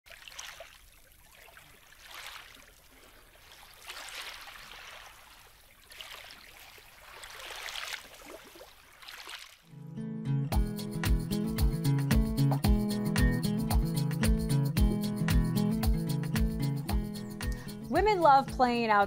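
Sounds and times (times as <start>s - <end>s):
waves lapping at stony shore: 0.1s - 9.7s.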